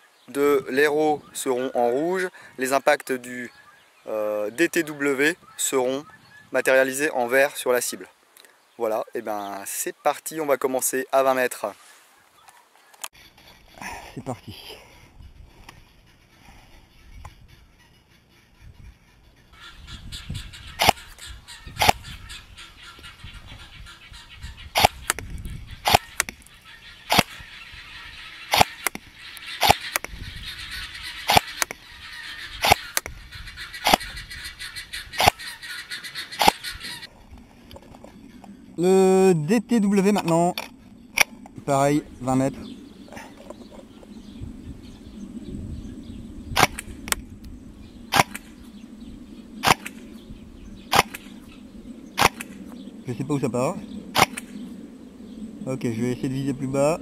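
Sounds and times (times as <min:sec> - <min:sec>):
airsoft gun shots: 0:46.6 - 0:46.8, 0:49.6 - 0:50.0, 0:50.9 - 0:51.3, 0:52.2 - 0:52.5, 0:54.2 - 0:54.5.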